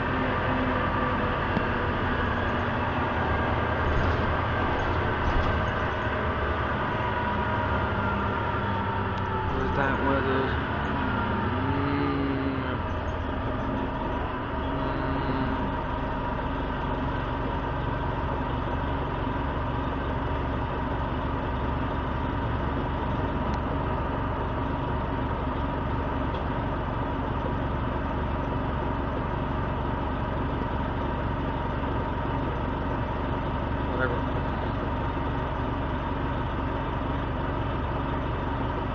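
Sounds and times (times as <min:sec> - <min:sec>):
bus engine idling: 0:00.0 - 0:38.9.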